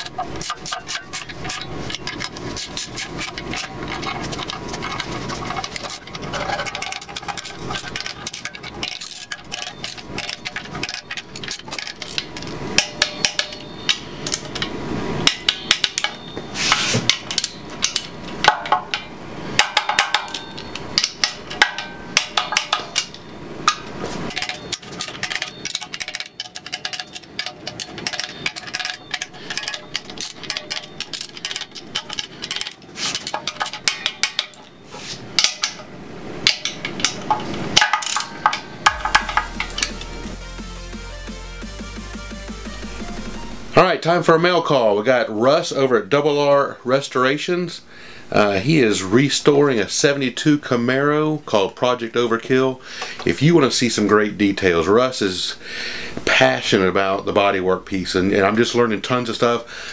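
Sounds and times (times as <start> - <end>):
wrench knocking against metal: 0.0 - 14.7, 19.6 - 34.7, 36.5 - 40.1
hand ratchet clicking: 0.0 - 16.2, 19.6 - 34.7.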